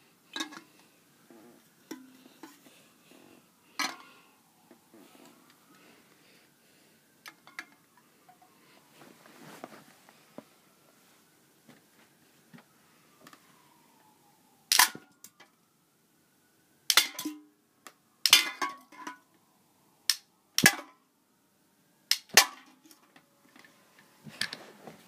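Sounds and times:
cans clattering: 0:00.3 - 0:00.8, 0:01.9 - 0:02.7, 0:03.8 - 0:04.2, 0:16.9 - 0:17.4, 0:18.3 - 0:19.2, 0:22.1 - 0:22.7
rubber band gun snapping: 0:22.1 - 0:22.4.

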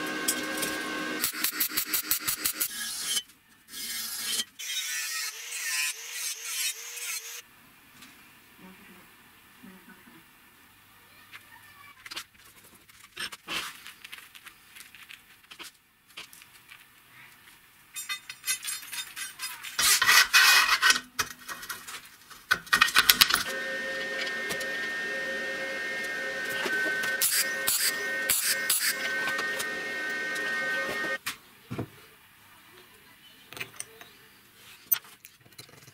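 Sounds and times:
rasping metal noise: 0:23.4 - 0:31.2.

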